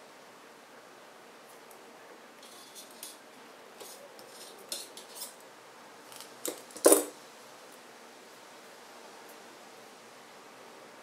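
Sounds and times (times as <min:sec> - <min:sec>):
pliers clicking and scraping wire: 0:06.1 - 0:07.1.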